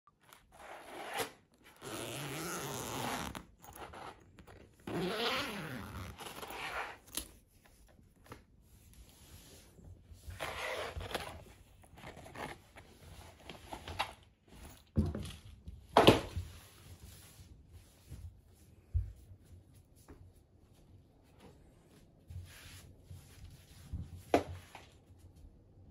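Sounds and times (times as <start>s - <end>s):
zipper being pulled open: 0.5s - 7.2s, 10.4s - 11.4s.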